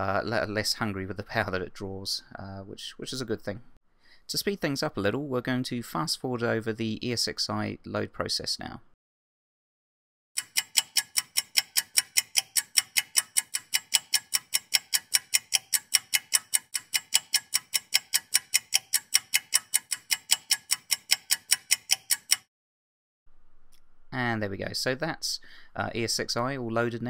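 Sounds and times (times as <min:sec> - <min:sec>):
fast even ticking: 0:10.4 - 0:22.5.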